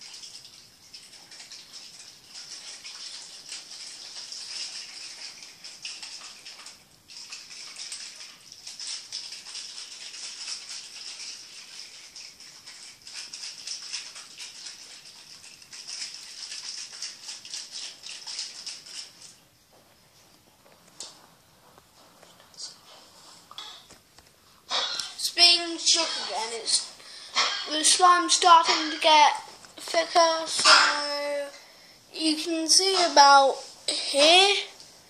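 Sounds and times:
slime sloshing in shaken test tube: 0.0 - 19.4.

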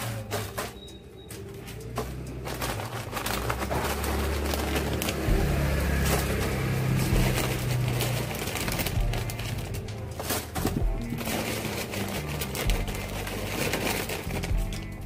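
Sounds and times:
low engine hum: 1.5 - 10.0.

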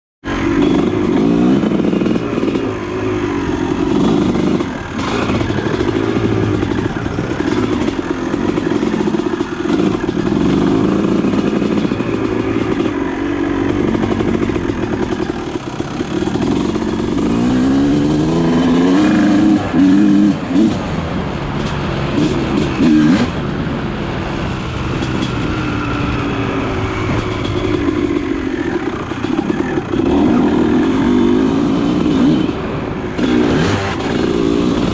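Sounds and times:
dirt bike engine revving: 0.3 - 21.0, 21.6 - 23.5, 24.6 - 34.9.

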